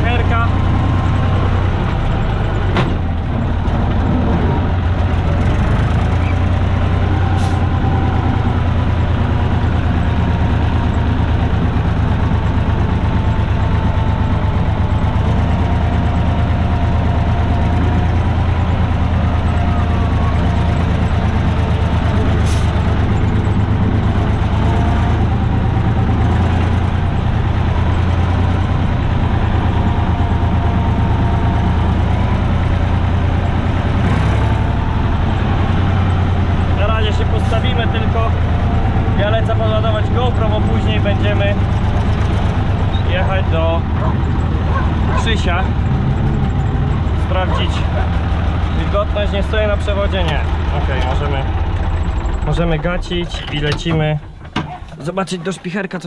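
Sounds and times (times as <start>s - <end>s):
tractor diesel engine running: 0.0s - 56.0s
sharp knocks and rattles: 1.9s - 6.2s, 41.3s - 55.9s.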